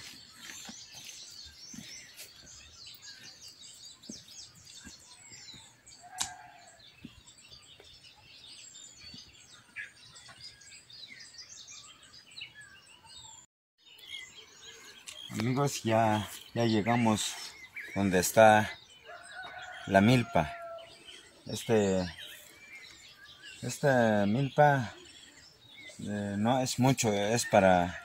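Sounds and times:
footsteps on dirt path: 0:00.0 - 0:10.7
songbirds chirping: 0:00.0 - 0:28.0.

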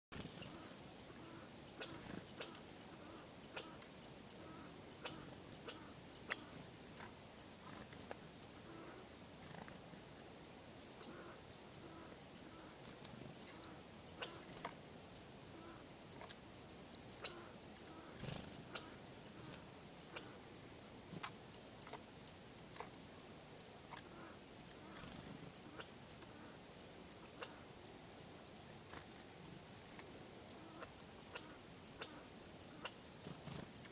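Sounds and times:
chickadee call notes: 0:15.2 - 0:25.0.

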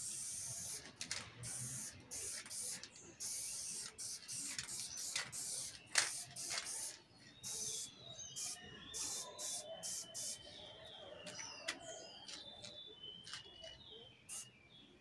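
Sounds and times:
spray paint can hissing: 0:00.0 - 0:10.4.

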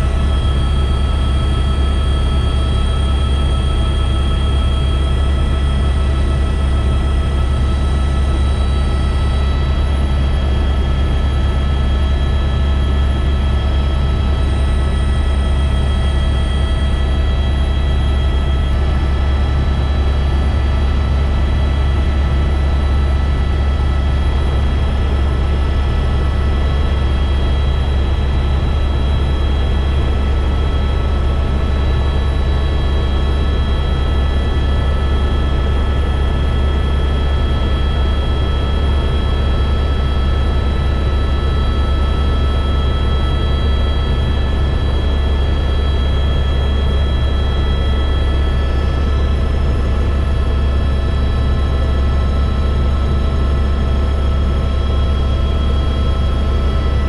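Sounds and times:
helicopter cabin drone: 0:00.0 - 0:57.0.

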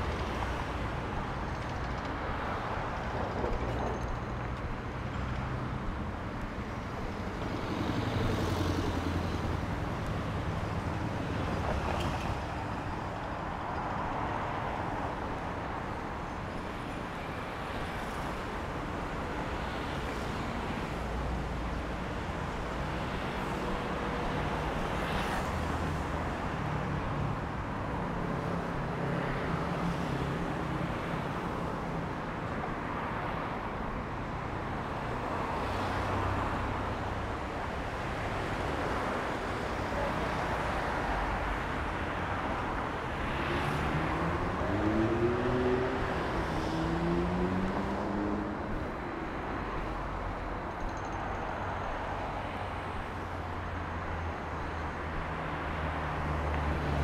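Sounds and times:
cars passing: 0:04.4 - 0:57.0.

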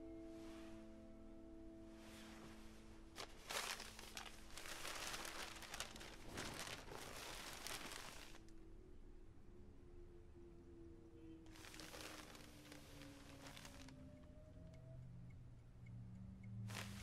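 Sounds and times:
faint held music notes: 0:00.0 - 0:17.0
paper crinkling and rustling: 0:03.2 - 0:08.5, 0:11.5 - 0:14.0, 0:16.7 - 0:17.0.

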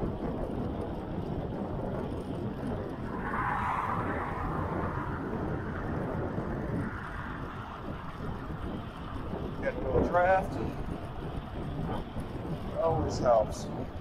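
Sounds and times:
wind noise on microphone: 0:00.0 - 0:14.0
car passing with tyre hiss: 0:03.0 - 0:07.3.

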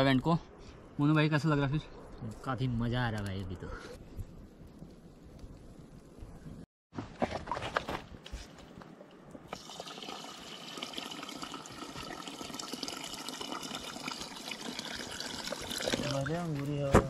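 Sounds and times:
wood fire crackling: 0:01.8 - 0:06.7
water pouring into metal pot: 0:09.6 - 0:16.4.

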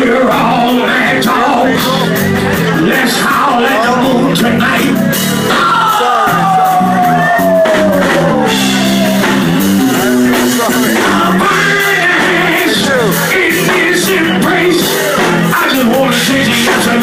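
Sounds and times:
instrumental band music: 0:00.0 - 0:17.0.

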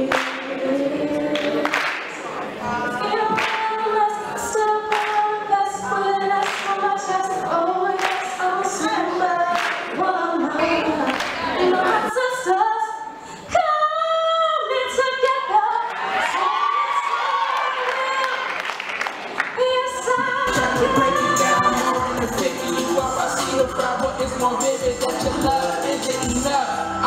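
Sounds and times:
woman singing into a microphone: 0:02.7 - 0:16.4, 0:19.6 - 0:24.2.

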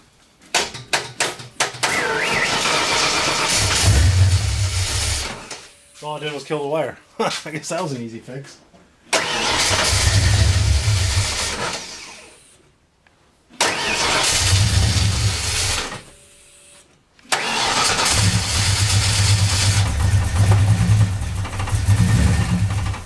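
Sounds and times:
car engine revving: 0:01.9 - 0:05.4, 0:09.2 - 0:12.0, 0:13.6 - 0:16.0, 0:17.3 - 0:23.0.

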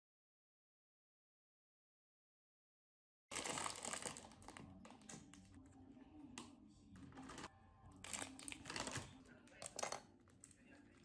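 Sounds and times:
plastic packaging crinkling: 0:03.3 - 0:05.4, 0:07.2 - 0:10.5.

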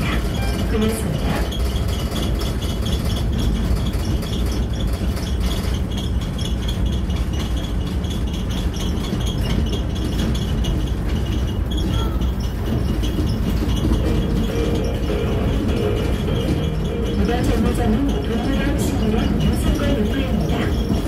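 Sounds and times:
road train carriage rumbling and rattling: 0:00.0 - 0:21.0.

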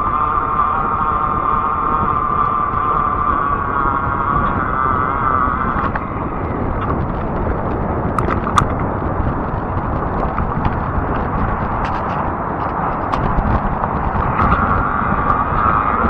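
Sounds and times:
high electric motor whine: 0:00.0 - 0:16.0
wind: 0:00.0 - 0:16.0
sharp clicks or rattles: 0:08.2 - 0:08.8.

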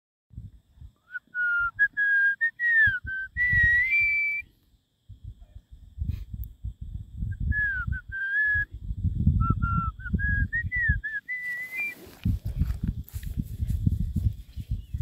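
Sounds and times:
person whistling a tune: 0:01.0 - 0:04.5, 0:07.4 - 0:08.7, 0:09.4 - 0:12.0.

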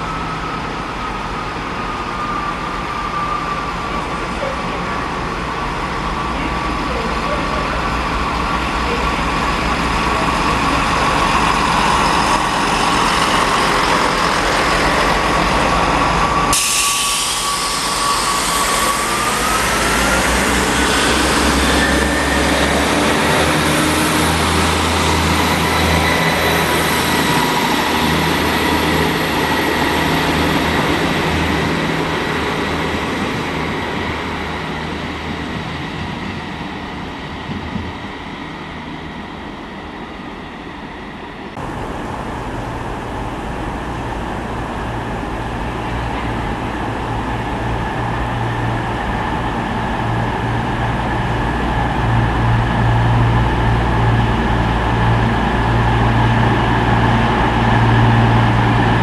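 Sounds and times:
diesel train engines humming: 0:00.0 - 0:59.0.

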